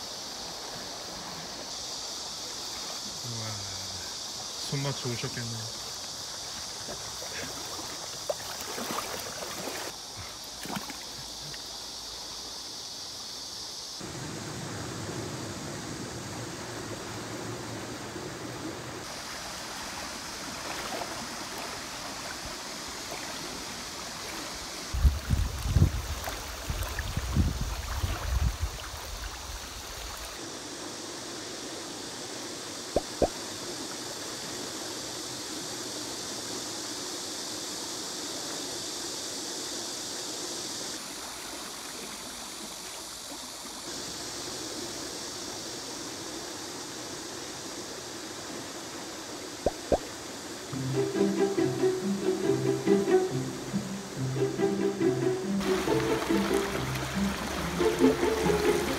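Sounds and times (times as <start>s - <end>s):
river rapids rushing: 50.8s - 58.9s.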